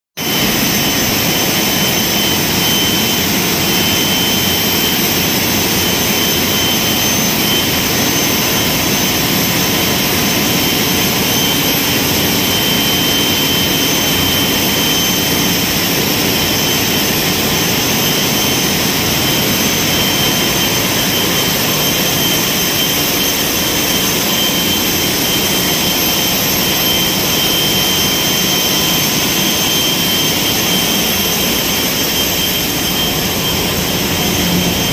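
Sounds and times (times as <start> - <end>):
thin steady high tone: 0.2 - 34.9
diesel engines running: 30.6 - 34.9.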